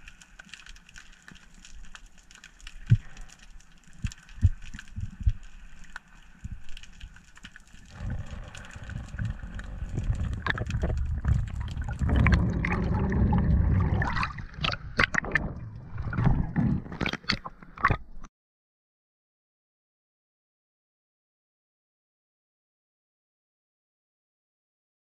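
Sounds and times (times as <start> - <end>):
sharp clicks and crackles: 0.0 - 18.3
underwater rumble of moving water: 1.6 - 17.8.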